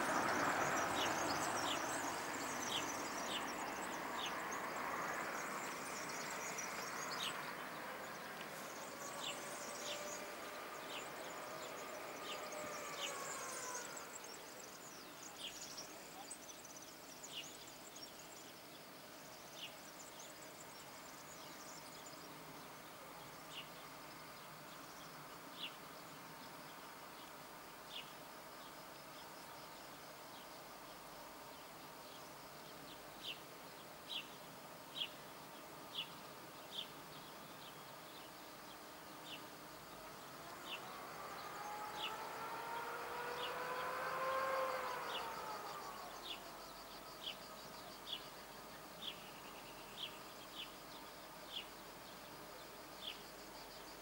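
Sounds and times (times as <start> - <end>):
faint insect buzz: 0.0 - 54.0
distant motor-like tone: 5.4 - 14.9, 40.0 - 47.8.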